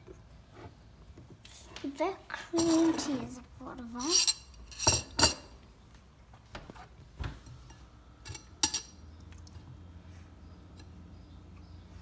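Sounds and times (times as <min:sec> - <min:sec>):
metal spoon clinking on pan and bowl: 0:04.0 - 0:05.5, 0:07.7 - 0:09.0.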